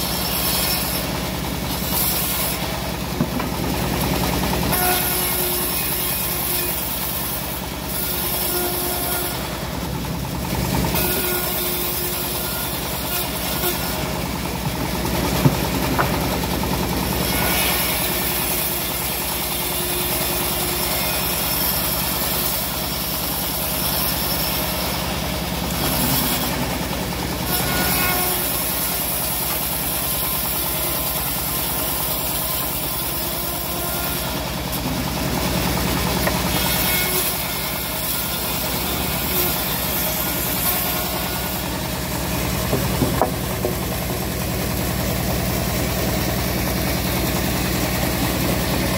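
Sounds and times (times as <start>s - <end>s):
saw blade cutting hiss: 0.0s - 1.2s
sawmill droning: 0.0s - 48.9s.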